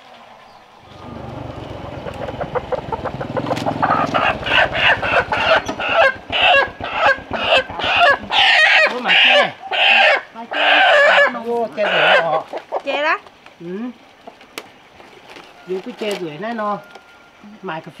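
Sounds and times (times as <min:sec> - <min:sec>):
motor scooter engine running: 0:00.8 - 0:08.6
chicken squawking loudly: 0:02.2 - 0:12.8.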